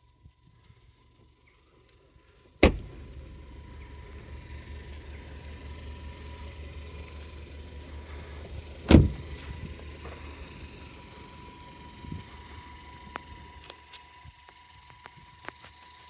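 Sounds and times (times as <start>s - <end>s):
steady low rumble: 0.0s - 16.0s
car boot lid slammed shut: 2.6s - 2.9s, 8.9s - 9.2s
car door closing: 2.6s - 3.1s, 8.8s - 9.4s.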